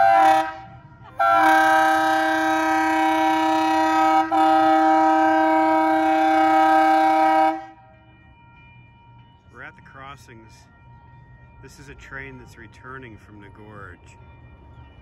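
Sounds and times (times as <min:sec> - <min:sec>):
train cars rumbling: 0:00.0 - 0:07.9
train horn blasts: 0:00.0 - 0:07.9.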